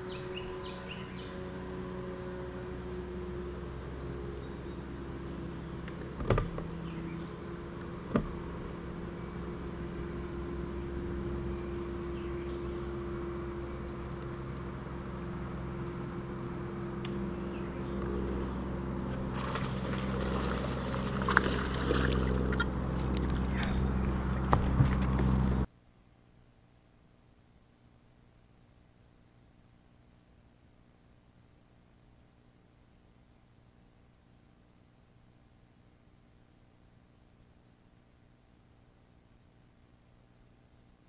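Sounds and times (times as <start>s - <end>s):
birds chirping: 0.0s - 6.1s, 6.7s - 15.6s, 16.8s - 24.1s
fish splashing at surface: 19.3s - 22.7s.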